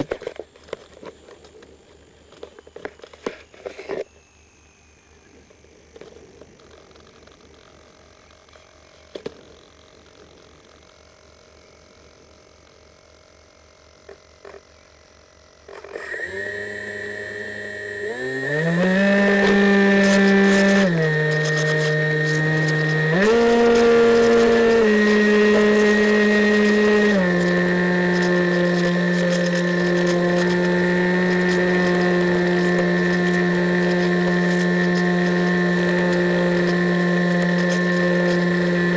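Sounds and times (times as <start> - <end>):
electric motor and propeller: 0.0 - 38.9.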